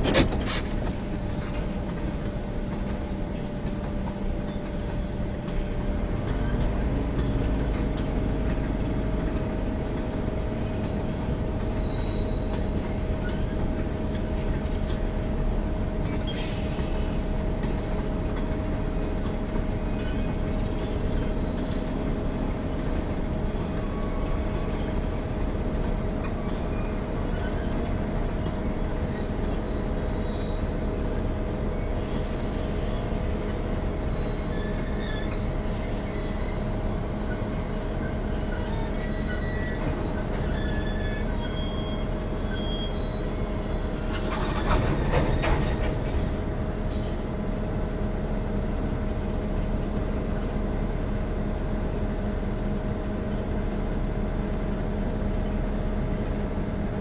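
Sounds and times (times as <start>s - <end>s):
train cars rumbling past: 0.0s - 57.0s
wheels squealing: 6.1s - 7.9s, 11.6s - 14.7s, 23.1s - 46.0s.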